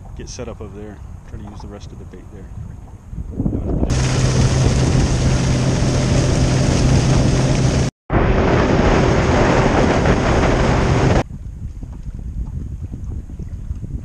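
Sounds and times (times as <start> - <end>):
wind rush on microphone: 0.0 - 14.0
water hissing along hull: 3.9 - 7.9
outboard engine tone: 3.9 - 11.2.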